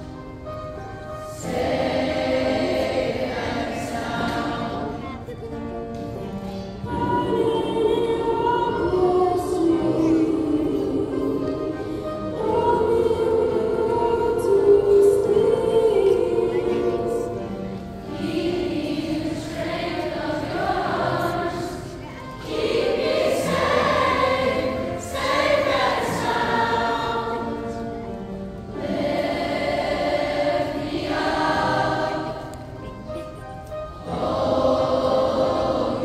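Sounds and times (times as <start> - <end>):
youth choir singing: 1.3 - 5.3, 6.8 - 28.0, 28.7 - 32.7, 34.0 - 36.0.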